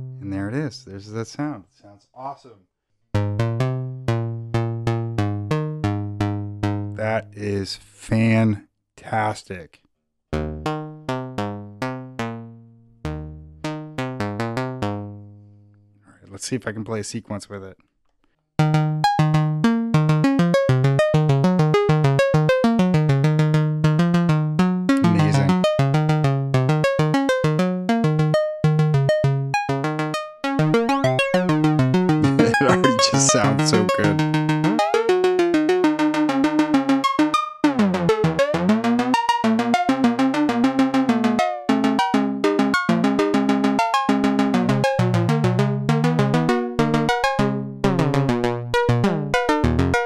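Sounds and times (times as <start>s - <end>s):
synth plucked note sequence: 3.2s - 6.9s, 29.8s - 50.0s
fast sequenced synth notes: 30.6s - 37.2s.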